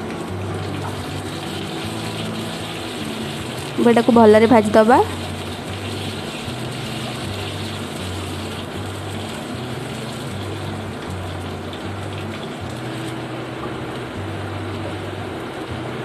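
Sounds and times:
onions sizzling in hot oil: 0.0s - 16.0s
soft background music: 0.0s - 16.0s.

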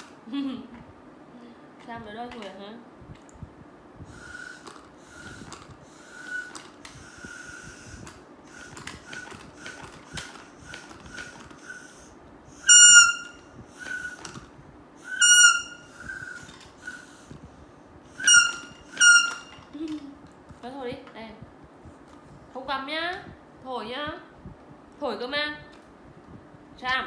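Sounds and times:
shrill whistle blasts: 12.6s - 14.3s, 15.0s - 17.2s, 18.1s - 19.6s
toy whistle toots: 12.6s - 14.4s, 15.0s - 17.2s, 18.1s - 19.6s.

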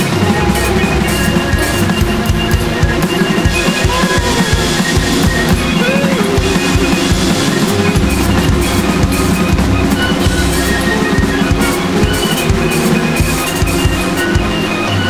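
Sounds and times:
fast dense electronic drumming: 0.0s - 15.0s
sustained synth tones: 0.0s - 15.0s.

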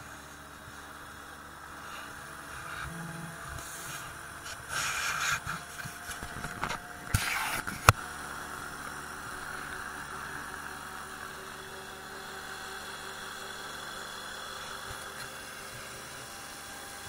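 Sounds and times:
autogyro engine and rotor running: 0.0s - 17.0s.

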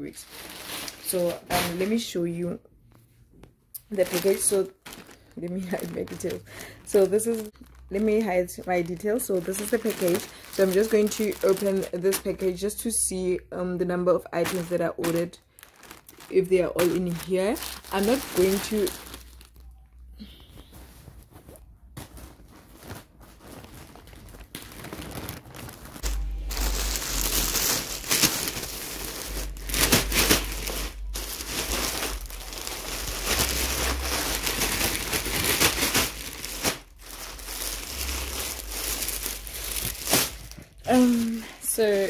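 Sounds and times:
plastic bags crinkling: 0.0s - 2.5s, 3.8s - 42.0s.

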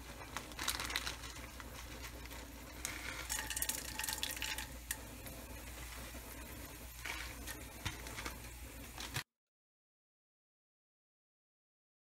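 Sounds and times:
small crackles: 0.0s - 6.2s
berries sizzling in oil: 0.0s - 9.2s.

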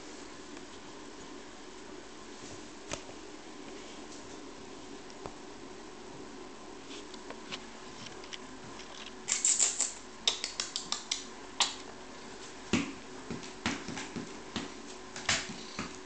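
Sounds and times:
kittens' claws clicking on wooden floor: 8.8s - 11.8s.

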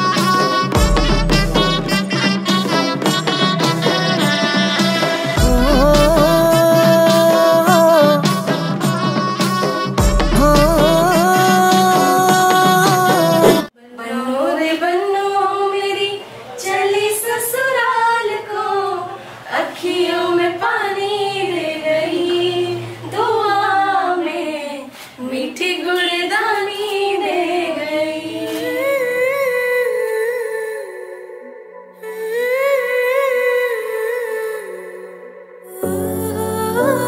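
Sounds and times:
woman singing: 0.0s - 37.0s.

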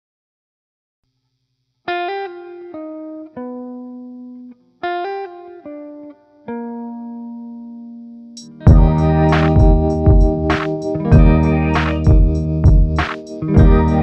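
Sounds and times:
plucked string phrase: 8.6s - 14.0s.

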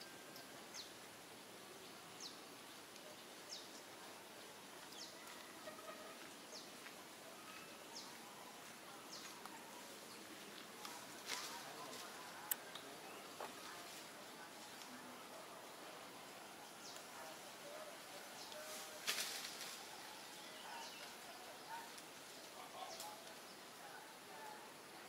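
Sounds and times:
faint steady hiss: 0.0s - 25.0s
brief rustle: 18.4s - 19.9s.

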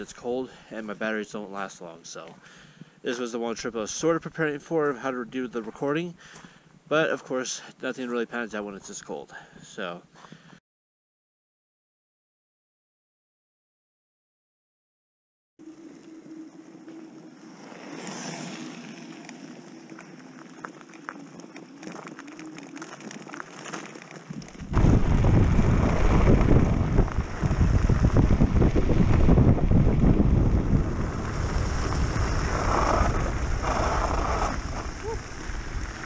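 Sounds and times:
faint steady hum: 15.6s - 22.9s
tyre rumble on gravel: 17.6s - 36.0s
wind buffeting microphone: 24.4s - 36.0s.

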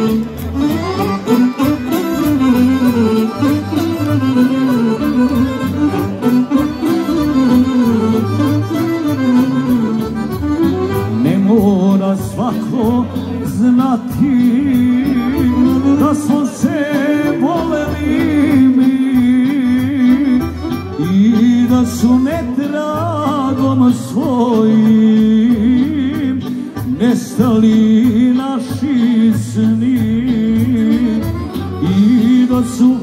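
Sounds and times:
man singing: 0.0s - 3.5s, 10.8s - 33.0s
folk band playing: 0.0s - 33.0s.

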